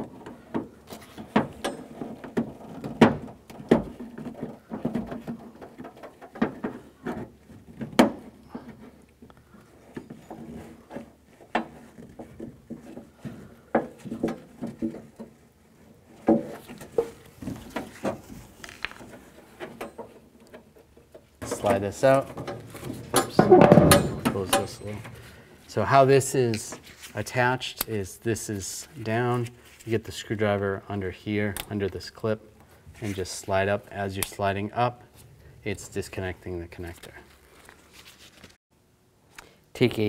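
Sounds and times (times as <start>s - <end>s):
sharp clicks and knocks: 16.2s - 25.2s.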